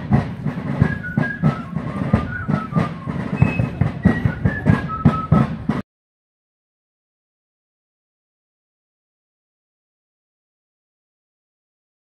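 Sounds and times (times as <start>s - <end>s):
drums beating steady cadence: 0.0s - 5.8s.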